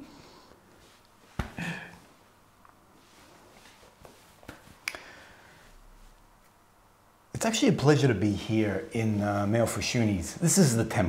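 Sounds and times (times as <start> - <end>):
man breathing holding back tears: 1.5 - 2.1.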